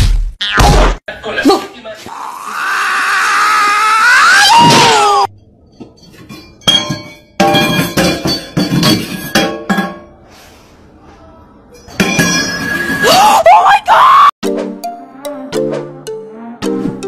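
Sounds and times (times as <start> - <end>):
metal objects clinking in sink: 5.6 - 10.1, 11.8 - 13.0.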